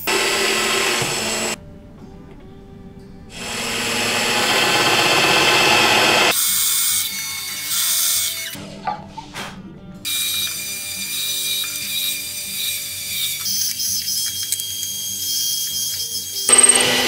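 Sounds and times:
drill press boring into plywood: 0:00.0 - 0:01.6, 0:03.3 - 0:06.3, 0:16.4 - 0:17.0.

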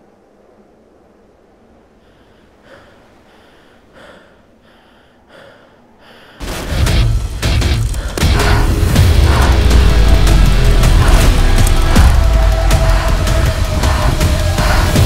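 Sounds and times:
person breathing hard: 0:02.0 - 0:15.0
loud music with deep bass: 0:06.4 - 0:15.0.

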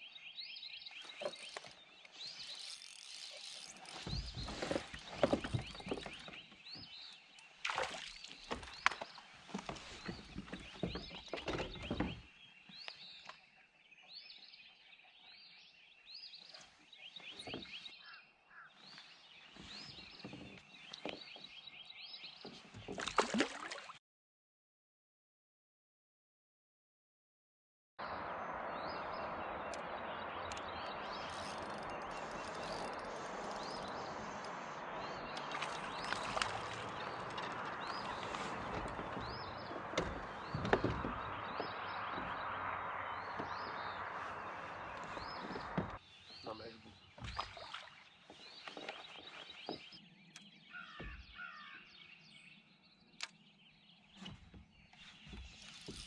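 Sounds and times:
songbirds chirping: 0:00.0 - 0:23.8, 0:28.0 - 0:56.0
gear knocking and rustling: 0:01.1 - 0:06.8, 0:31.2 - 0:46.0
sharp knocks: 0:37.4 - 0:44.1.

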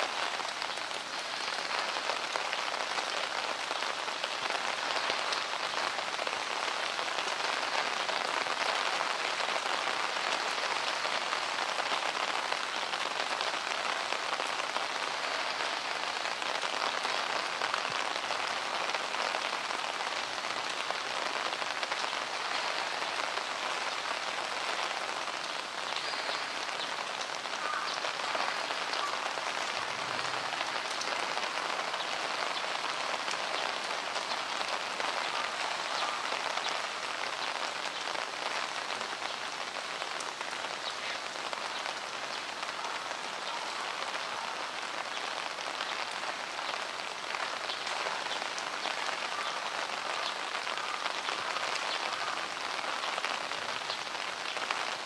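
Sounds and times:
heavy rain hissing: 0:00.0 - 0:55.0.

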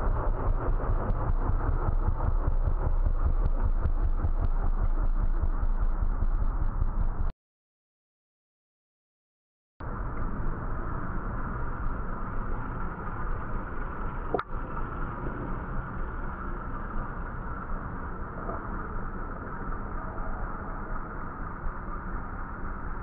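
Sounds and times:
low rumbling background noise: 0:09.8 - 0:23.0.

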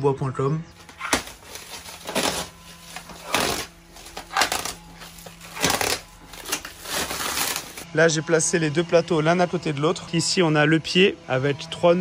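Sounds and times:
plastic wrap crinkling and ripping: 0:00.8 - 0:07.8.

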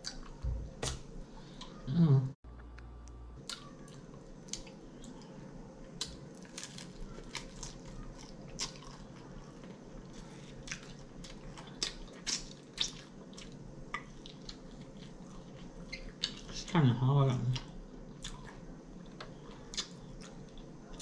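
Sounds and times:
chewing with wet smacks: 0:06.0 - 0:16.6, 0:17.5 - 0:21.0.

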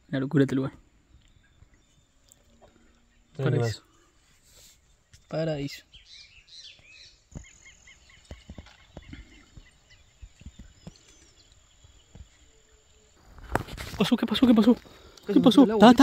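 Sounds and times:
branches rustling and shaking: 0:13.2 - 0:16.0.

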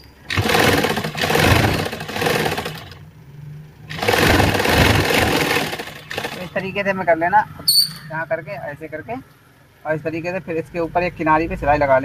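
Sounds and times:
sewing machine stitching: 0:00.2 - 0:03.0, 0:03.9 - 0:06.7.

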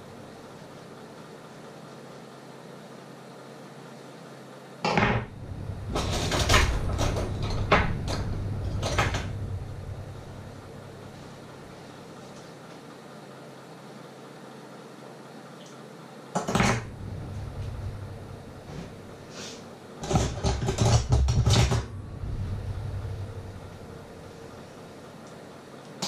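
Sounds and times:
low hum: 0:05.1 - 0:12.3, 0:16.8 - 0:20.0, 0:21.3 - 0:25.7.

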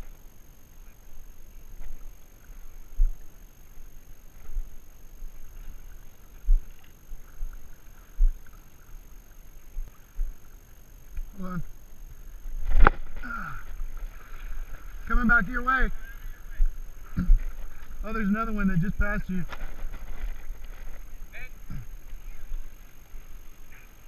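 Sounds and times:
water sloshing around legs: 0:01.8 - 0:11.3.

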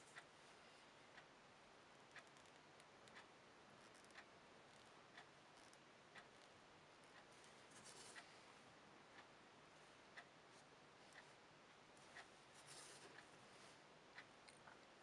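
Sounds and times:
clock ticking: 0:01.1 - 0:07.4, 0:09.0 - 0:10.4, 0:11.1 - 0:12.3, 0:14.1 - 0:15.0.

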